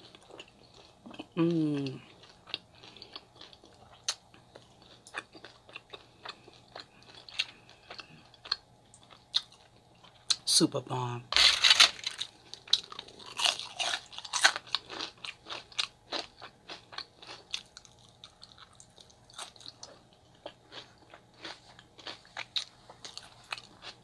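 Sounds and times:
crunchy biting and chewing: 11.4 - 24.0.

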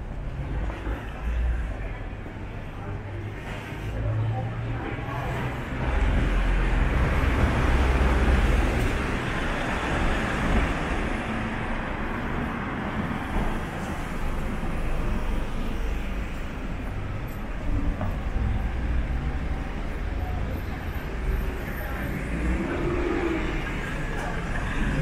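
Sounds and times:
traffic hum with low rumble: 0.0 - 25.0
vehicle passing by: 21.8 - 25.0.

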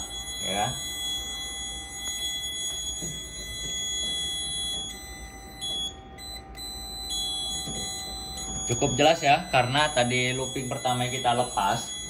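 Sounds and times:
alarm panel buzzer tone: 0.0 - 12.0.

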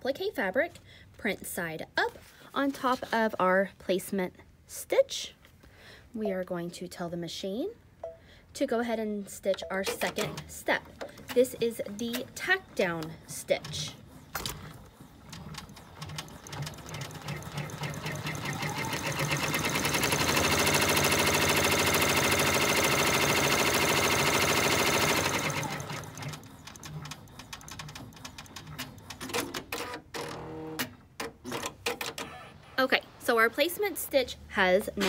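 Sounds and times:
machine clicks: 9.5 - 21.0
embroidery machine stitching: 9.8 - 32.7.

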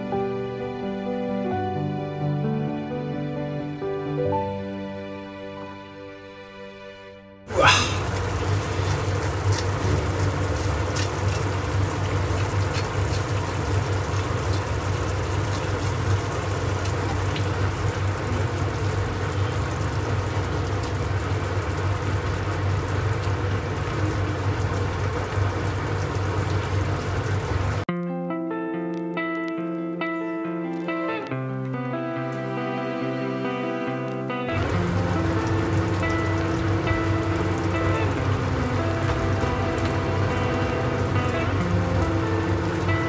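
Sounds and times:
water running from tap: 7.5 - 27.9, 34.5 - 43.0.

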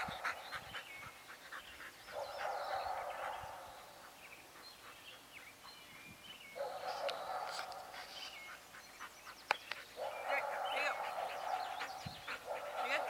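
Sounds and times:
dogs barking: 0.0 - 5.0, 6.6 - 8.9, 9.7 - 13.0
birds chirping: 0.0 - 13.0.

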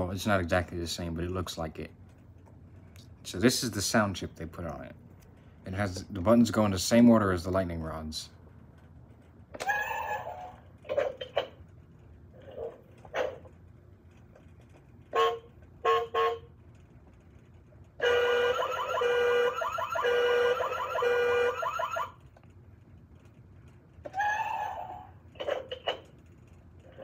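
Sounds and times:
toy car honk-like beeps: 15.2 - 16.5, 18.0 - 22.0
loud pulsing electronic alarm: 18.0 - 22.2.

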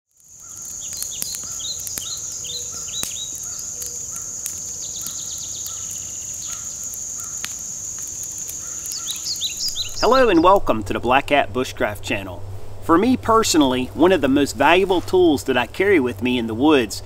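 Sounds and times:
campfire crackling and popping: 0.1 - 17.0
high insect drone: 0.2 - 16.9
falling bird chirps: 0.3 - 10.6.

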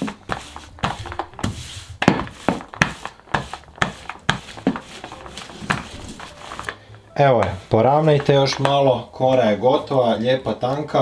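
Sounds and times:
rolling pin knocking on table: 0.0 - 5.0
plastic bag crinkling: 4.8 - 7.0.

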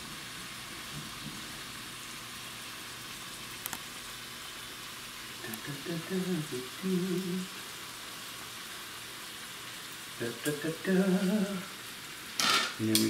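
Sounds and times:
steak sizzling in a pan: 0.0 - 13.0
man's voice: 12.8 - 13.0.

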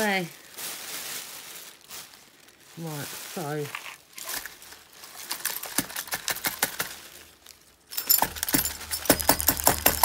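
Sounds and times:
broken glass clinking: 7.9 - 10.0.

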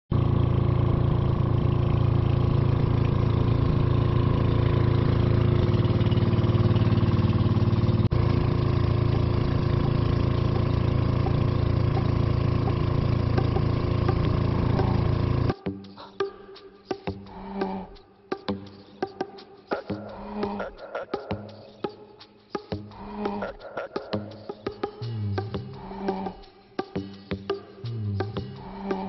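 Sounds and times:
boat engine drone: 0.1 - 21.7.

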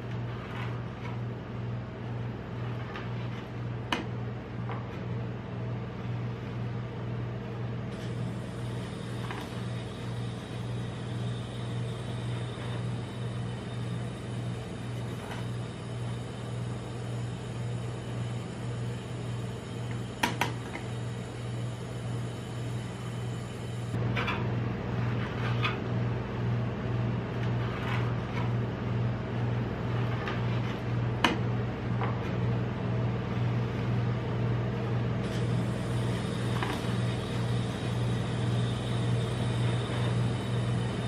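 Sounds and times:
spatula scraping metal plate: 0.0 - 1.2, 2.5 - 3.6, 24.0 - 25.9, 27.3 - 28.6, 29.8 - 31.4
cold plate machine hum: 0.0 - 41.0.

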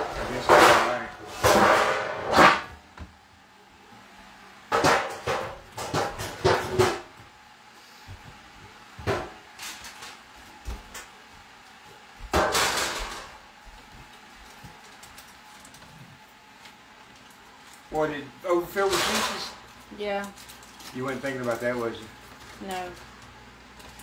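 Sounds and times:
pans and utensils clattering: 0.0 - 2.7, 4.7 - 7.1, 12.4 - 13.3, 18.8 - 19.6.

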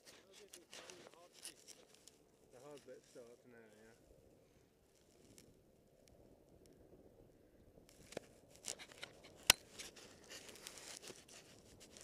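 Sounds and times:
clothing and gear rustling: 0.0 - 3.4, 7.9 - 12.0.

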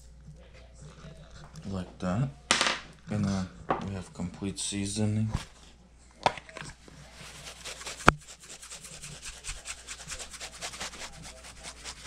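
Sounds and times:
plastic shaker rattling: 7.2 - 12.0.

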